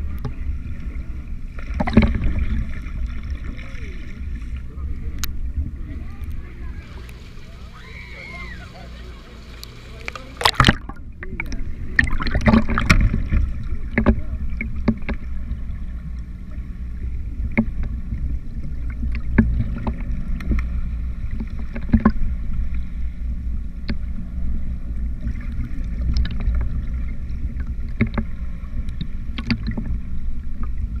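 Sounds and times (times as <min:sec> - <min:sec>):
muffled underwater rumble: 0:00.0 - 0:31.0
sharp clicks and knocks: 0:27.9 - 0:28.3.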